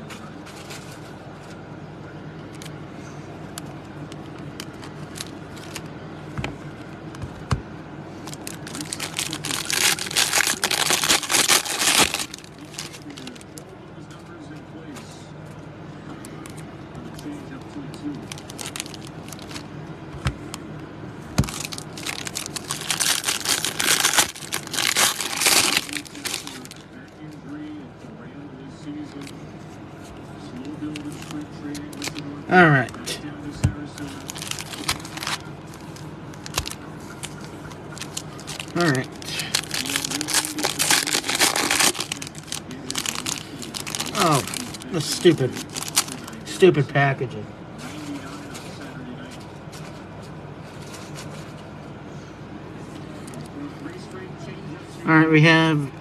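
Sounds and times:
low background hum: 0:00.0 - 0:56.0
foil card packs crinkling: 0:00.1 - 0:01.2, 0:04.1 - 0:05.9, 0:08.2 - 0:13.6, 0:16.4 - 0:19.7, 0:21.4 - 0:27.4, 0:30.5 - 0:46.7.

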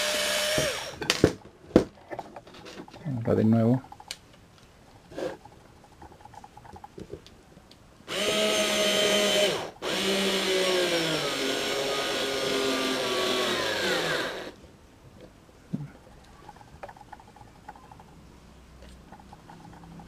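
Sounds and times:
cordless screwdriver motor whining: 0:08.1 - 0:14.6.

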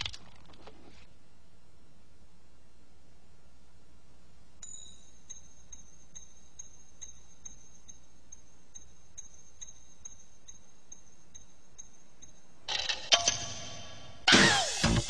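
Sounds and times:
evenly spaced ticks: 0:04.6 - 0:12.8
high metallic ringing: 0:04.6 - 0:14.2.

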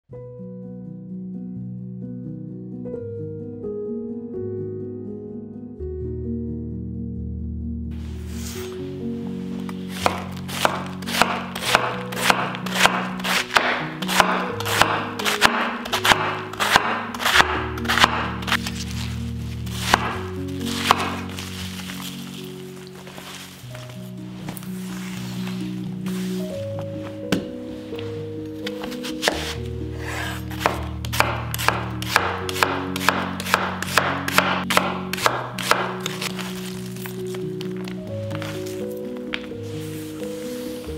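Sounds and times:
background music: 0:00.1 - 0:40.9
knife chopping on cutting board: 0:09.9 - 0:18.7, 0:19.8 - 0:21.2, 0:28.7 - 0:36.5.

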